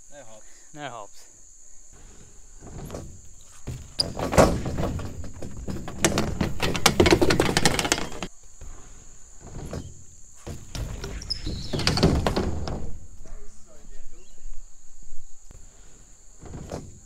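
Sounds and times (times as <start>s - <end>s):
heavy thud: 2.0s - 14.0s
bike tyres rolling on a ramp: 2.0s - 17.0s
bike clattering down a ramp: 2.6s - 8.3s, 9.4s - 13.2s, 16.4s - 17.0s.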